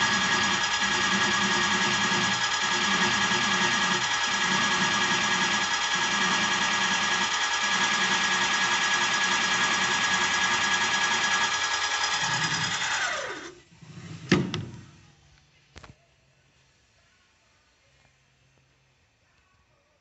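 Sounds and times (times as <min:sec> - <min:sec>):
spindle cutter boring metal: 0:00.0 - 0:13.5
spindle winding down whine: 0:00.0 - 0:13.6.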